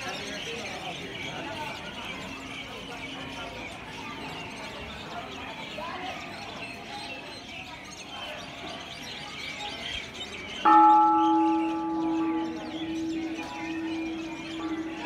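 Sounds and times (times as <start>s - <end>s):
small birds chirping: 0.0s - 15.0s
large bell ringing: 10.6s - 15.0s.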